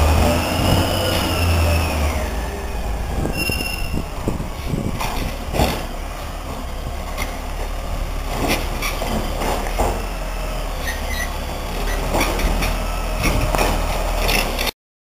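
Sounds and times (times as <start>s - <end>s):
engine whine: 0.0s - 14.7s
garbage truck diesel engine: 0.0s - 14.7s
high squeal: 0.3s - 4.9s, 10.7s - 13.2s
knocks and clanks: 3.4s - 6.0s, 7.1s - 10.0s, 11.9s - 14.7s.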